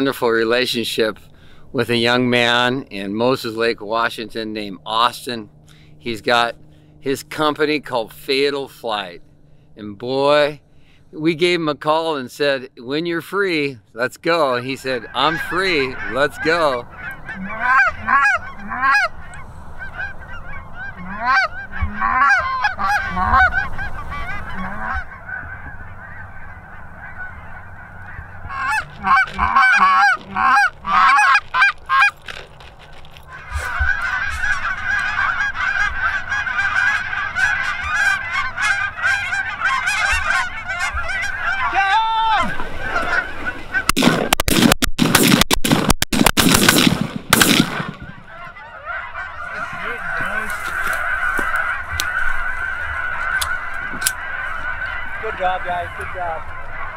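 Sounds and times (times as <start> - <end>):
geese honking: 0.0 - 44.6, 46.5 - 56.9
loud crackling noise: 43.8 - 48.5.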